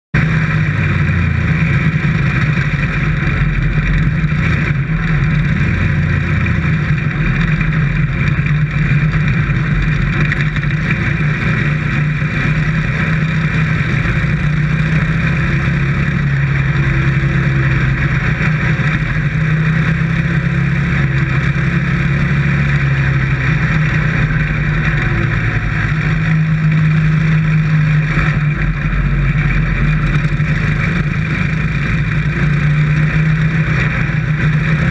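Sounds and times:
race car engine running loud: 0.2 - 34.9.

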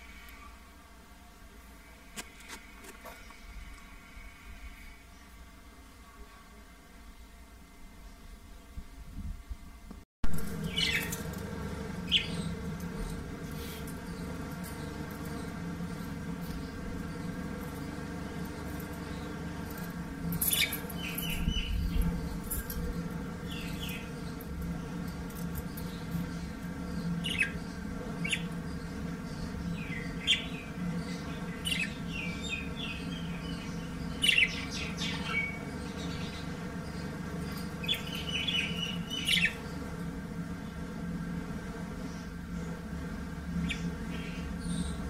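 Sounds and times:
steady low hum: 0.0 - 45.0
budgerigars chirping: 37.8 - 39.8.

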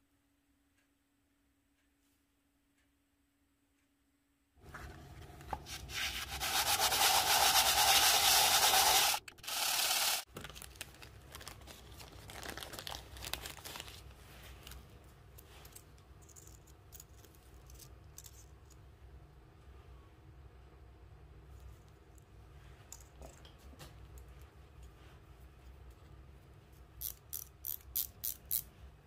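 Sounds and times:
metal plate sanding on abrasive paper: 5.9 - 10.2
rustles of small parts handled: 8.3 - 18.8.

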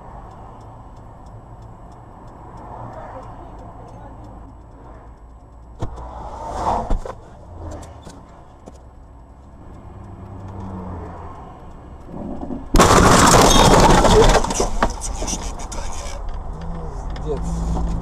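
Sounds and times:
car crashing into snow: 12.7 - 14.9.

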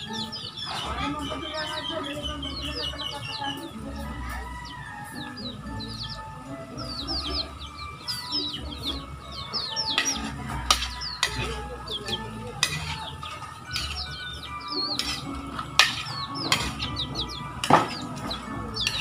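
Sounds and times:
birds chirping: 0.0 - 19.0
spatula scraping a wok: 8.9 - 19.0.

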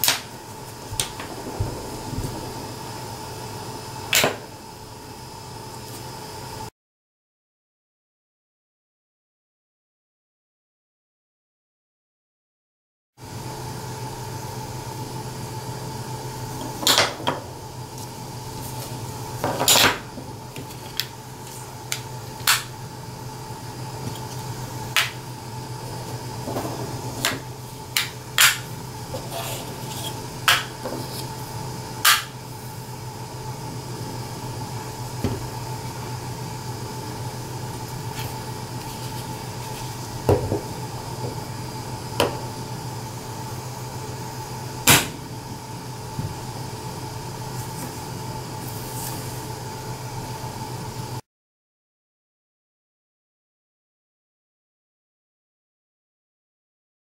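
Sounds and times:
steady low hum: 0.0 - 6.7, 13.2 - 51.2.

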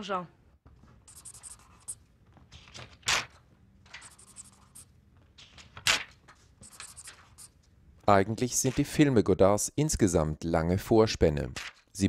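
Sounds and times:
short scratching strokes: 1.0 - 2.0, 4.0 - 4.9.

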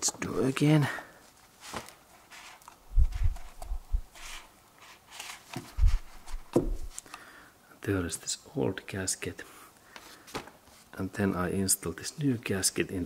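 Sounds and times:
gloved hands rubbing: 1.6 - 7.0
dull handling thumps: 5.6 - 6.9.

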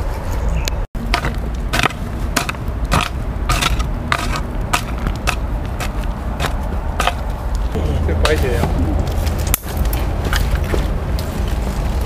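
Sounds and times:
hoe chopping and scraping dirt: 1.0 - 11.6.

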